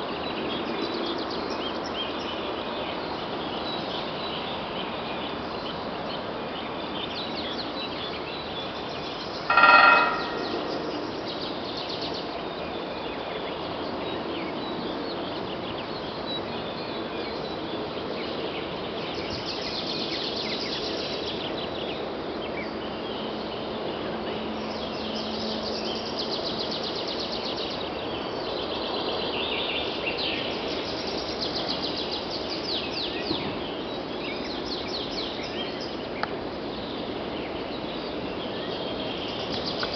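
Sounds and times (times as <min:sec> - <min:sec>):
woodpecker drumming on metal: 0:09.5 - 0:10.9
small birds chirping: 0:24.6 - 0:39.9.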